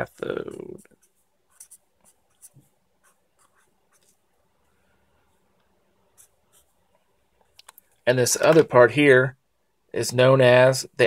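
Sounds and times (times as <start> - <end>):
marker writing on paper: 0.2 - 4.2, 6.1 - 6.9.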